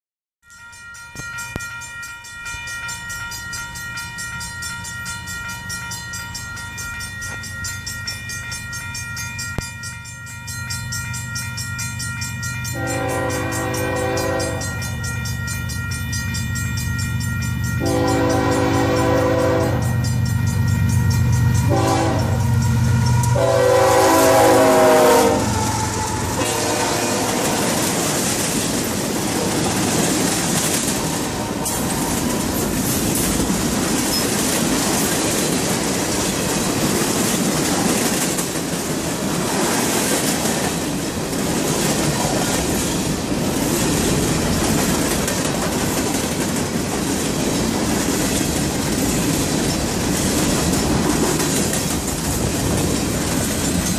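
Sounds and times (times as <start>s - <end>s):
locomotive horn blasts: 12.8s - 14.9s, 17.8s - 20.0s, 21.6s - 28.0s
freight cars rumbling over rail joints: 24.2s - 53.9s.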